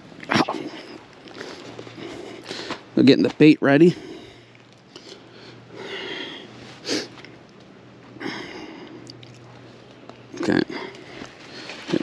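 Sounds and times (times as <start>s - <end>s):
person sniffing: 5.8s - 7.2s
quiet rustling: 9.2s - 12.0s.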